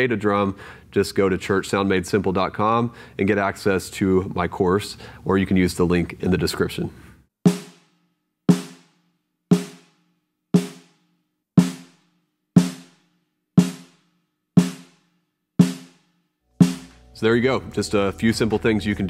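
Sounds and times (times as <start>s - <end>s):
damped snare drum hits: 7.5s - 10.0s, 10.6s - 11.0s, 11.6s - 12.0s, 12.6s - 13.0s, 13.6s - 14.0s, 14.6s - 15.0s, 15.6s - 16.0s, 16.6s - 17.1s.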